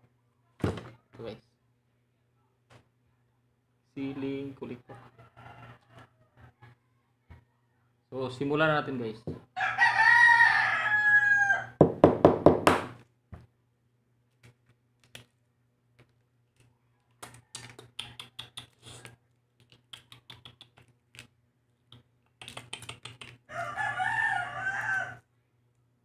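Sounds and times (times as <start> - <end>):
rooster crowing: 4.9 - 7.9, 9.6 - 11.8, 23.5 - 25.3
egg shell crackling while peeled: 14.3 - 23.6.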